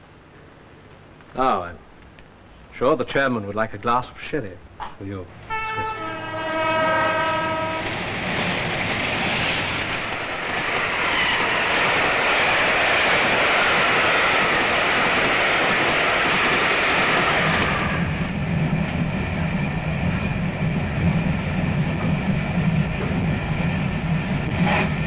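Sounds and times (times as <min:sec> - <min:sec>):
train rumble inside carriage: 0:02.8 - 0:25.0
train rushing past: 0:02.8 - 0:25.0
steam train whistle: 0:05.5 - 0:08.0.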